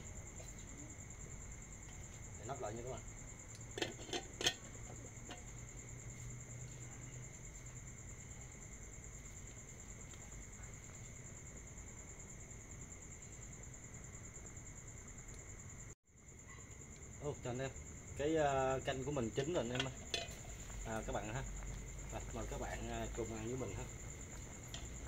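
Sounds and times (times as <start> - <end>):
crickets chirring: 0.0 - 25.0
pot lid clanking: 3.7 - 5.5, 19.7 - 20.5.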